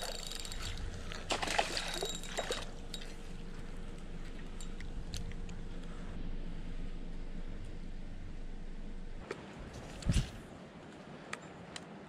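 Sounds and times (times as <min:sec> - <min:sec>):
fish splashing into water: 0:01.2 - 0:02.7.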